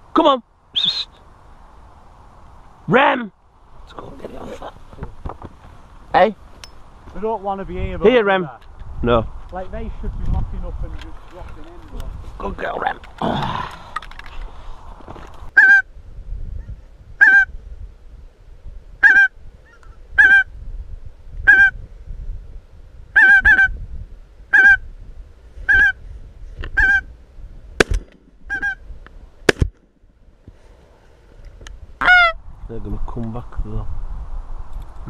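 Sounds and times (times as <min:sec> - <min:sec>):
geese honking: 0:15.6 - 0:15.8, 0:17.2 - 0:17.5, 0:19.0 - 0:19.3, 0:20.2 - 0:20.5, 0:21.5 - 0:21.7, 0:23.2 - 0:23.7, 0:24.5 - 0:24.8, 0:25.7 - 0:26.0, 0:26.8 - 0:27.0, 0:28.5 - 0:28.8, 0:32.0 - 0:32.4.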